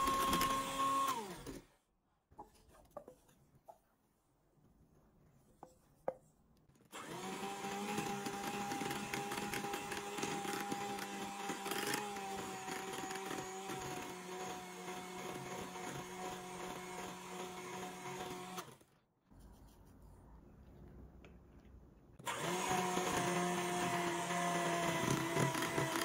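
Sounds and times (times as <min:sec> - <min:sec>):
kitchen appliance motor running: 0:00.0 - 0:01.6, 0:06.9 - 0:18.9, 0:22.2 - 0:26.0.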